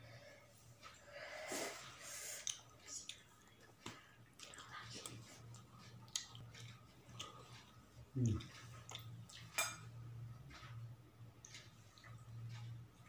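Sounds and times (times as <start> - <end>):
wet chewing and smacking: 2.4 - 13.0.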